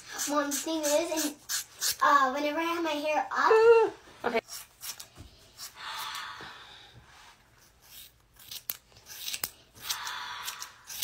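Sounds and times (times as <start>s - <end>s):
scissors cutting hair: 0.1s - 2.0s, 4.4s - 6.1s, 7.6s - 11.0s
scissor blades clicking: 7.9s - 11.0s.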